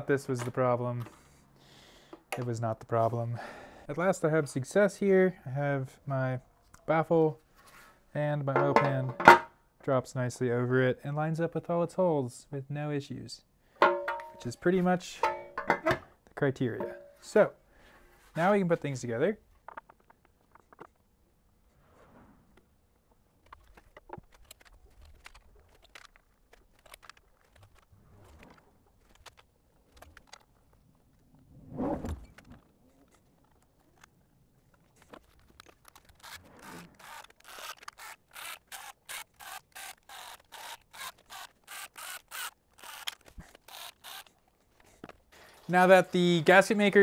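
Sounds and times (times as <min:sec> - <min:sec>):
metal parts clicking and knocking: 0:15.2 - 0:16.1.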